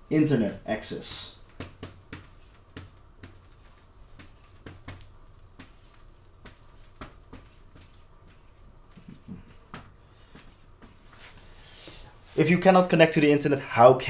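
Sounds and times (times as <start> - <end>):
marker pen writing on paper: 1.5 - 11.2.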